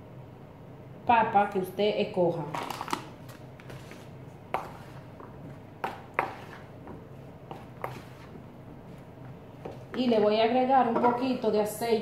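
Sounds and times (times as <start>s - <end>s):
stirring potatoes in flour: 3.7s - 10.5s.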